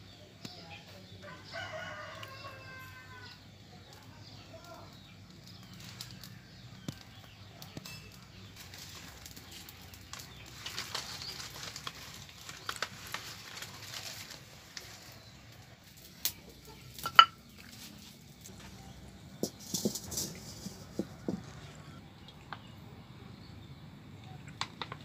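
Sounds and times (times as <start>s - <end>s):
kindling rustling and crackling: 3.9s - 22.0s.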